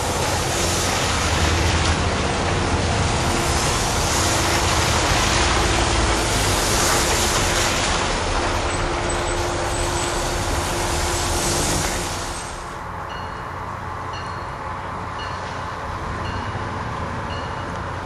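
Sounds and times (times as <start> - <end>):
loud even hiss: 0.0 - 13.0
engine rumble: 0.0 - 18.0.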